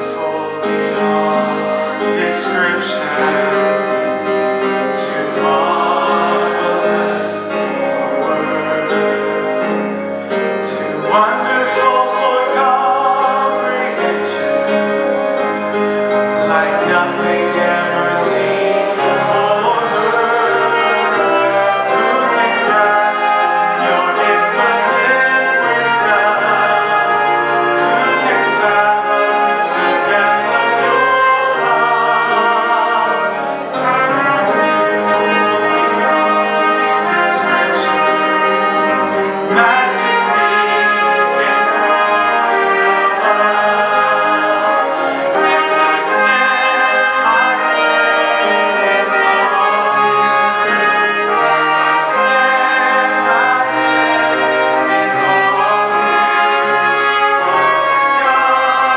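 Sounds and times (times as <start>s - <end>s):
brass strings piano and organ ensemble: 0.0s - 58.9s.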